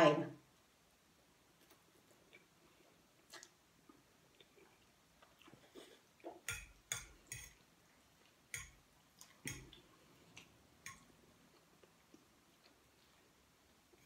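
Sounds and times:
wet chewing smacks: 0:03.2 - 0:06.5.

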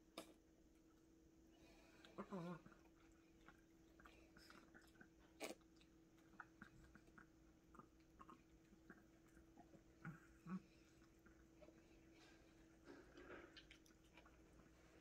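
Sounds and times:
dogs chewing: 0:02.0 - 0:15.0.

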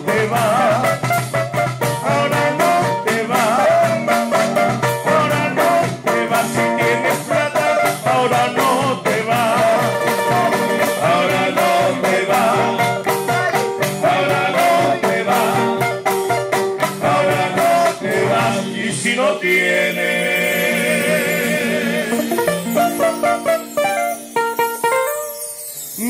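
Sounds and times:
percussive beat: 0:00.0 - 0:19.0, 0:22.1 - 0:25.1
person singing: 0:02.0 - 0:23.7
plucked strings: 0:09.6 - 0:14.8, 0:22.0 - 0:25.7.

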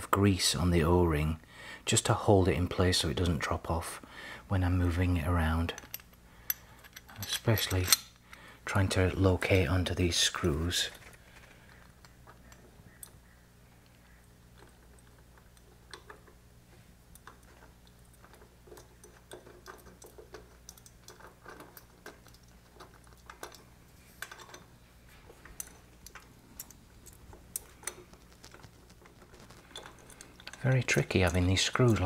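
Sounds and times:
steady low hum: 0:00.0 - 0:32.0
small metal clicks and taps: 0:17.1 - 0:23.6, 0:25.4 - 0:32.0.

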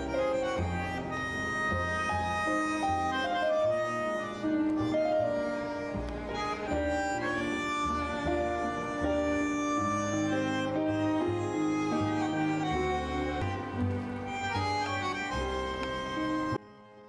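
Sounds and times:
keyboard: 0:00.0 - 0:17.0
violin melody: 0:00.0 - 0:17.0.

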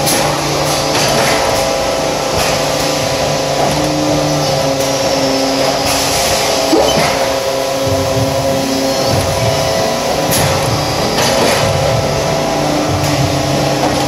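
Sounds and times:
machine squeak: 0:06.7 - 0:07.6.

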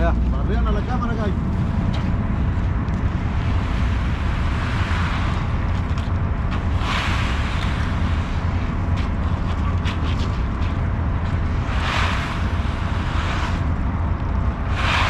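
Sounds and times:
diesel engine rumbling: 0:00.0 - 0:15.0
rushing hiss: 0:14.7 - 0:15.0.

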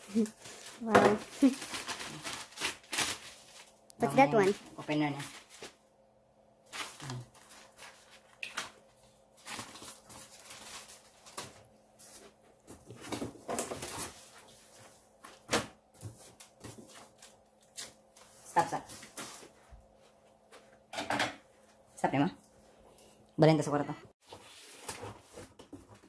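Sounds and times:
plastic packaging rustling: 0:00.0 - 0:05.8, 0:06.6 - 0:15.6.

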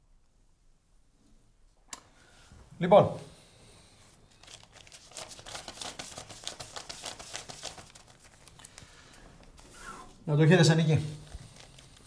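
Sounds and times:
paper banknotes rustling: 0:04.3 - 0:09.8, 0:10.7 - 0:12.0.

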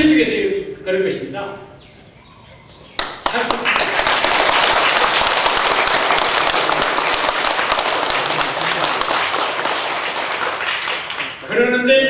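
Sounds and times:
audience applauding: 0:03.0 - 0:11.5.

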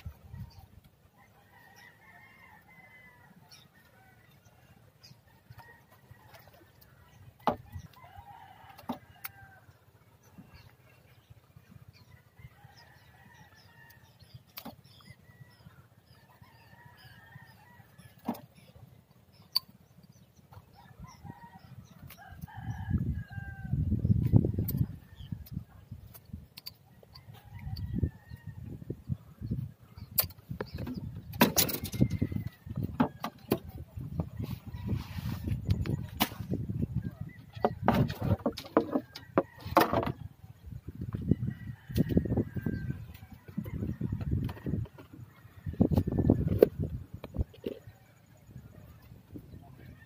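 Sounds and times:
roosters crowing: 0:31.4 - 0:33.6, 0:41.2 - 0:48.2.

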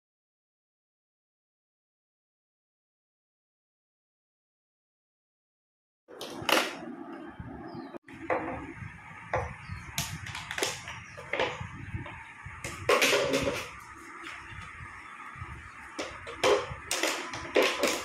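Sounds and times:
low handling rumble: 0:06.3 - 0:17.6.

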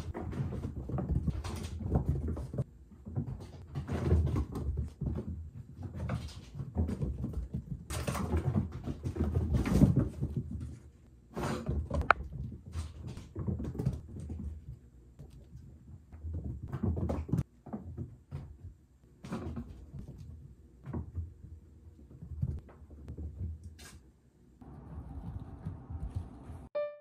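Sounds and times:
kittens' paws on wooden floor: 0:00.0 - 0:24.0, 0:24.8 - 0:26.7.

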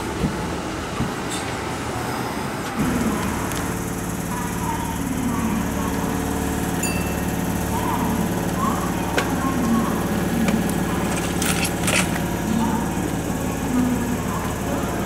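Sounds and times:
electric train humming: 0:00.0 - 0:15.0
train rumble: 0:00.0 - 0:15.0.

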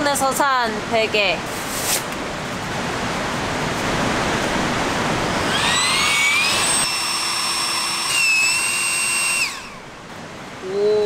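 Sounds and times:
pump motor whine: 0:02.8 - 0:10.7.

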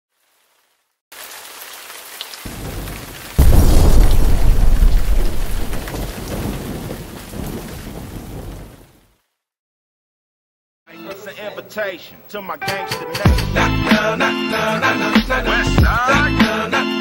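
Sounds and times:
heavy rain hissing: 0:01.2 - 0:08.8
loud thunderclap: 0:02.5 - 0:09.0
thunder rumble: 0:02.5 - 0:09.0.

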